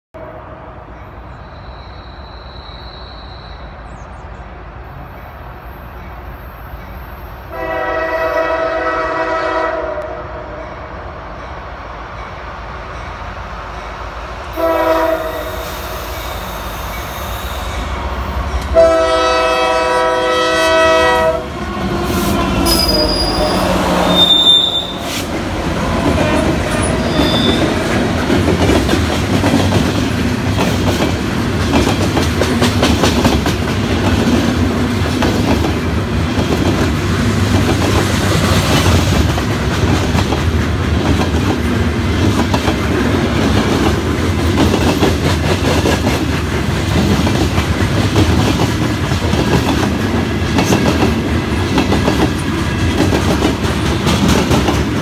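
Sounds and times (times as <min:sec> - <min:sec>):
train air horn: 0:07.5 - 0:10.8, 0:14.5 - 0:17.9, 0:18.7 - 0:25.3
wheel squeals: 0:26.8 - 0:27.7.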